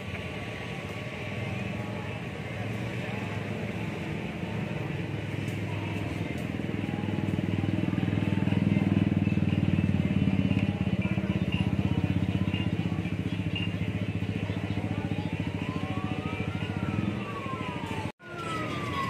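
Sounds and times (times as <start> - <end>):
motorcycle engine running: 0.0 - 19.0
siren rising and falling: 15.2 - 19.0.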